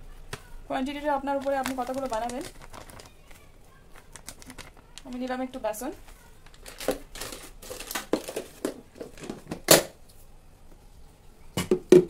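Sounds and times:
plastic packet crinkling: 1.2s - 8.8s.

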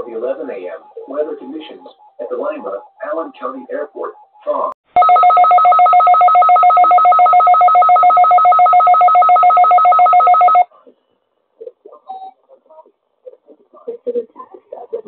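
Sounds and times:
electronic alarm tone: 5.0s - 10.7s.

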